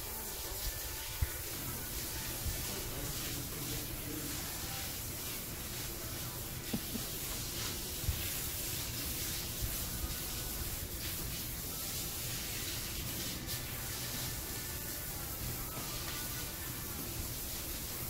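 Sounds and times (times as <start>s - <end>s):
air noise hiss: 0.0s - 18.0s
towel rubbing wet dog: 0.3s - 14.4s.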